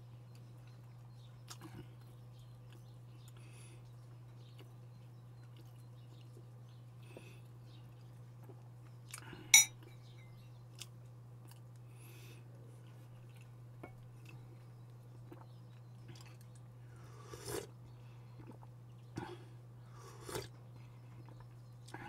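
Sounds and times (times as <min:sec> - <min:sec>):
faint chewing: 0:00.2 - 0:09.9, 0:10.5 - 0:22.0
tableware clink: 0:09.6 - 0:09.8.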